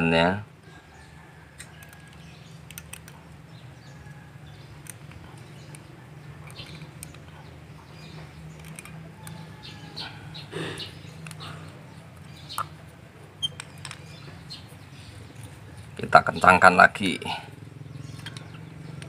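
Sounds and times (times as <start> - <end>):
small metal parts clicking: 1.6 - 3.2, 4.6 - 7.4, 8.0 - 10.0, 18.1 - 19.0
sharp clicks: 1.6 - 3.3, 4.8 - 7.4, 8.0 - 9.5.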